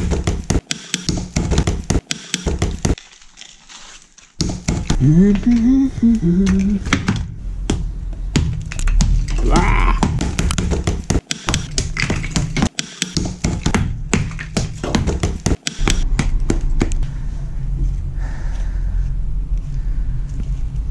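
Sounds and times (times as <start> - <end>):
ice chips clattering on wood: 3.0 - 4.4.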